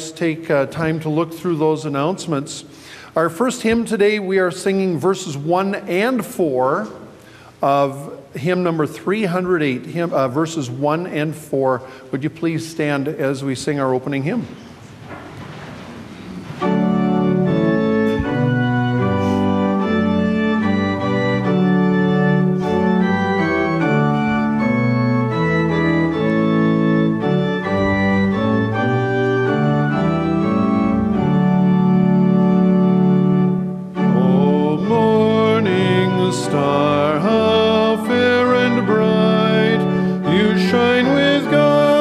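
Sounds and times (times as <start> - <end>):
pipe organ chords: 0.0 - 14.5, 16.2 - 42.0
congregation singing a hymn: 16.5 - 42.0.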